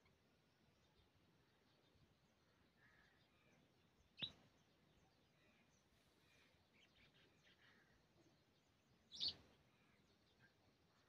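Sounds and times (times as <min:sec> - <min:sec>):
sparrow chirping: 0:04.0 - 0:05.6, 0:08.7 - 0:10.6.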